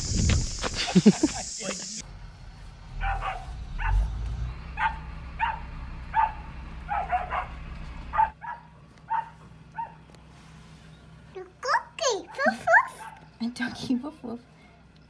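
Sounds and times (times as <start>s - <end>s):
dog barking: 3.0s - 4.1s, 4.8s - 10.0s, 12.2s - 13.3s.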